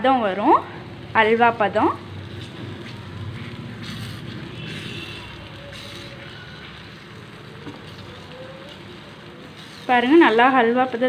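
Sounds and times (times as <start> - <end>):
halwa sizzling in a pan: 0.0 - 11.0
wooden spatula scraping a pan: 2.4 - 6.9.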